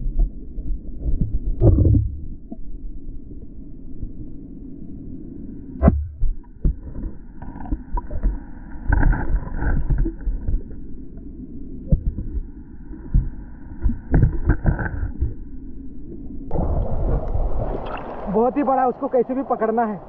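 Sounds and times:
underwater knocks: 0:00.0 - 0:02.6, 0:05.8 - 0:10.7, 0:11.9 - 0:12.5, 0:13.1 - 0:15.4
underwater wash of moving water: 0:00.0 - 0:04.6, 0:05.8 - 0:20.0.

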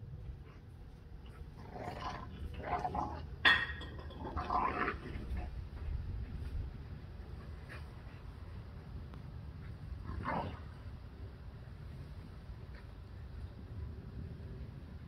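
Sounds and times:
dogs growling while wrestling: 0:01.2 - 0:03.4, 0:04.0 - 0:05.5, 0:10.0 - 0:10.8.

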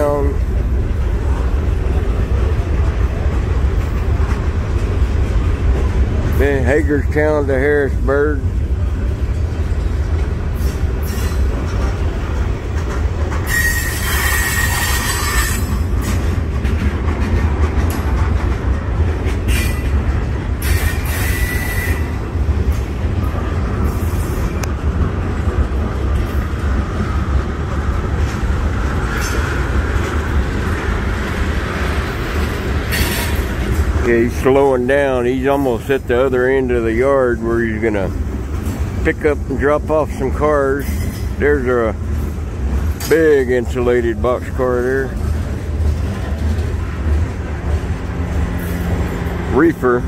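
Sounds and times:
freight train rumbling on rails: 0:00.0 - 0:50.0
wheels squealing on rail: 0:10.6 - 0:11.6, 0:13.3 - 0:16.4, 0:19.4 - 0:22.9, 0:23.8 - 0:24.6, 0:29.0 - 0:30.0, 0:32.3 - 0:33.7, 0:40.8 - 0:41.4.

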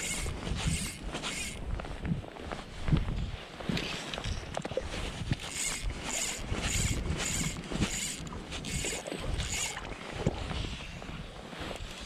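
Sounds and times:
fishing reel whirring: 0:00.0 - 0:01.8, 0:05.2 - 0:10.0
wind buffeting microphone: 0:00.0 - 0:12.0.

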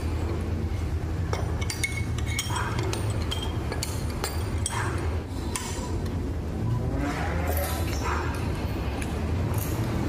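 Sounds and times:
steady low hum: 0:00.0 - 0:10.0
metal ring clinking on steel: 0:01.2 - 0:06.2.

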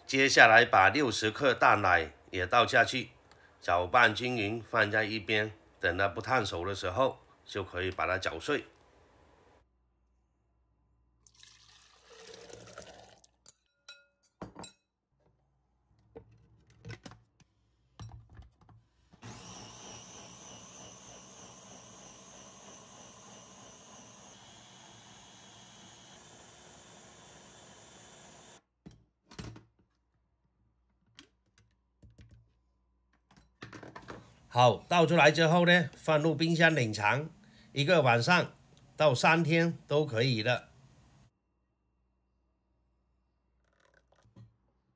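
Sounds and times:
liquid pouring: 0:11.2 - 0:13.4
electric blender whirring: 0:19.2 - 0:28.6.

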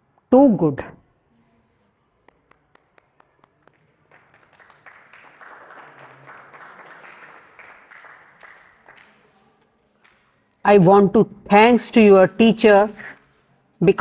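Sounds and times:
person clapping: 0:02.2 - 0:10.3
group applause: 0:02.2 - 0:10.6.

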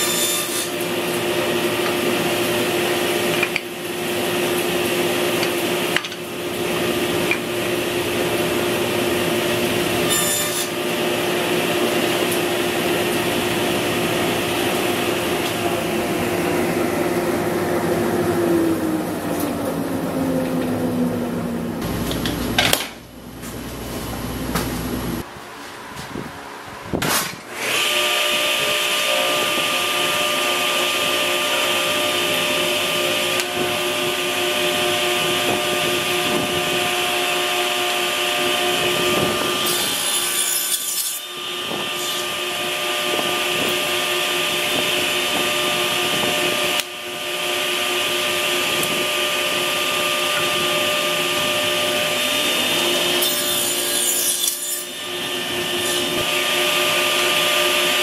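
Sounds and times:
saw blade rasping through wood: 0:00.0 - 0:03.6, 0:04.2 - 0:16.4, 0:27.6 - 0:58.0
table saw motor whine: 0:00.0 - 0:23.0, 0:27.5 - 0:58.0.

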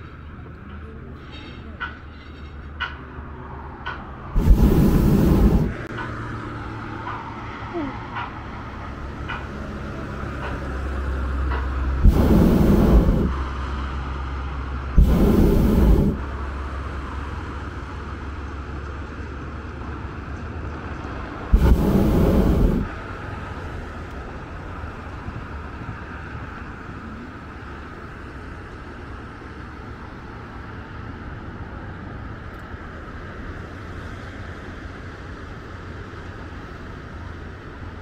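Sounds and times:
propane burner blasts: 0:03.8 - 0:07.3, 0:08.2 - 0:18.7, 0:19.7 - 0:29.1
steady low rumble: 0:03.8 - 0:10.6, 0:11.5 - 0:18.2, 0:21.2 - 0:27.9.

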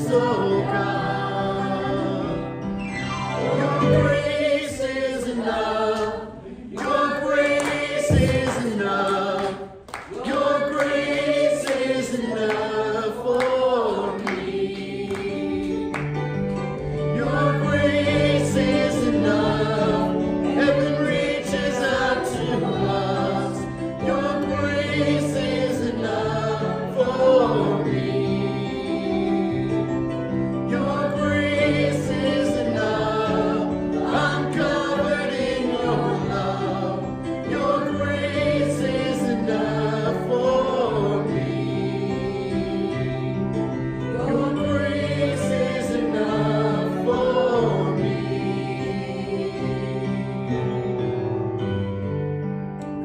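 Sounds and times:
instrumental accompaniment: 0:00.0 - 0:09.0
group singing a hymn: 0:00.0 - 0:51.2.

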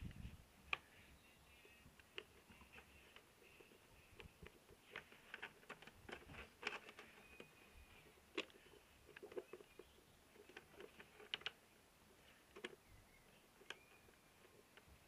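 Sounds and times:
faint clicks and light taps: 0:00.0 - 0:15.0.

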